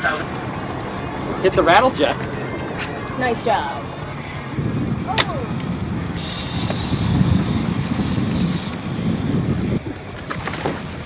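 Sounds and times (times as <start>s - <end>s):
boat engine rumble: 0.0s - 11.0s
wind: 0.0s - 11.0s
thin high whine: 6.0s - 9.8s.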